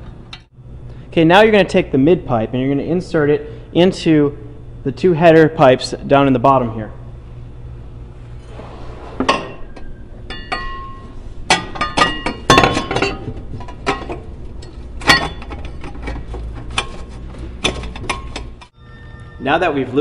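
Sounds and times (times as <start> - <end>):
metal pipe clinking and knocking: 9.6 - 16.9.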